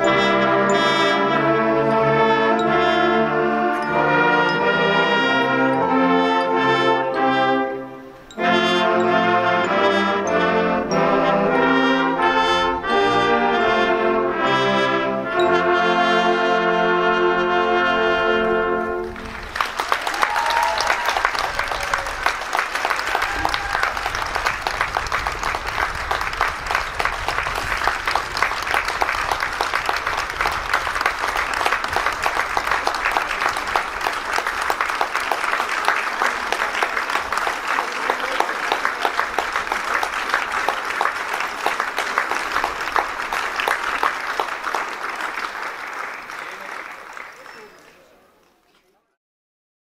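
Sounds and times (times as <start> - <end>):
crowd applauding: 19.0 - 48.8.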